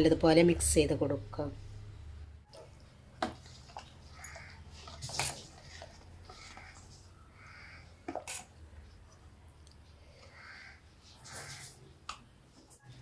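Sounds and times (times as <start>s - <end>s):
crow cawing: 4.1s - 4.8s, 5.7s - 8.0s, 10.1s - 11.8s.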